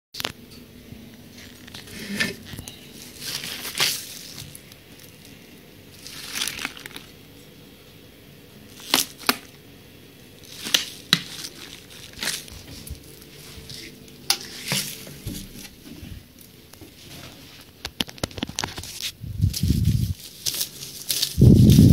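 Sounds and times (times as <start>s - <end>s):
plastic bottle crinkling: 1.3s - 7.5s, 10.4s - 15.8s, 17.6s - 21.9s
plastic cracking and clicking: 17.8s - 19.0s.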